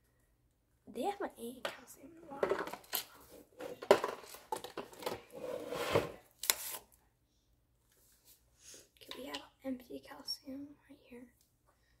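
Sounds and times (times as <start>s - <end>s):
rubbing and scraping: 2.3s - 6.7s.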